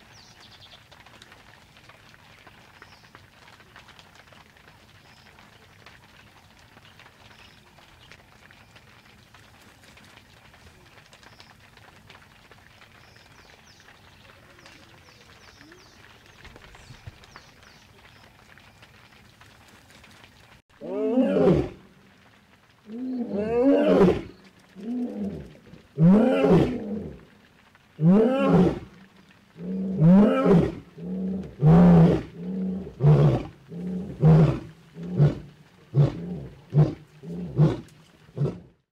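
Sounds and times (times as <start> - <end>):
lion roaring: 20.8 - 21.8, 22.9 - 27.3, 28.0 - 29.0, 29.6 - 38.8
lion grunting: 29.6 - 38.7.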